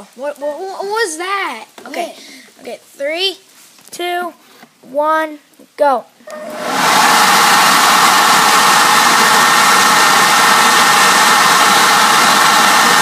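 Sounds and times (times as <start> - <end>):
leaf blower running: 6.3 - 13.0.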